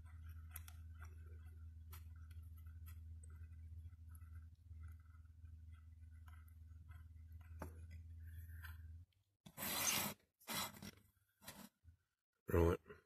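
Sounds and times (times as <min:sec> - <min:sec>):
low steady hum: 0:00.0 - 0:09.4
rustling scraping noise: 0:09.5 - 0:11.8.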